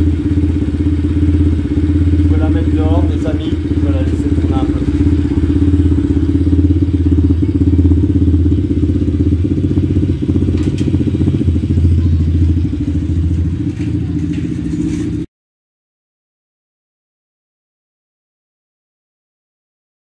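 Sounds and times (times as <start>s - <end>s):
dirt bike engine running: 0.0s - 15.3s.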